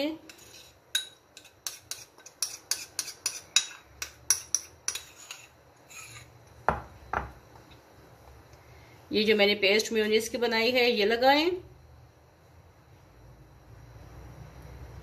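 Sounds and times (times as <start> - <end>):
metal spoon scraping a bowl: 0.0 - 6.5.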